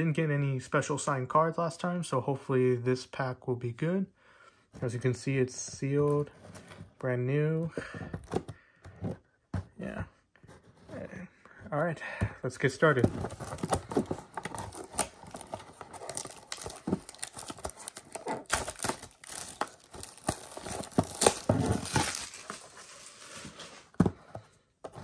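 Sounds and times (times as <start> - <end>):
plastic shrink-wrap crinkling and tearing: 13.3 - 23.6.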